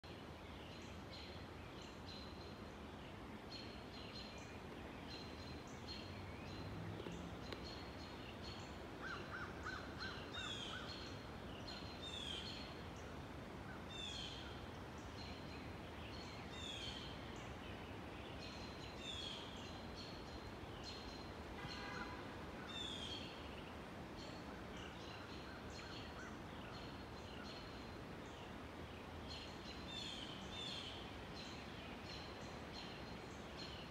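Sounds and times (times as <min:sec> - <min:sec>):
background hiss: 0:00.0 - 0:33.9.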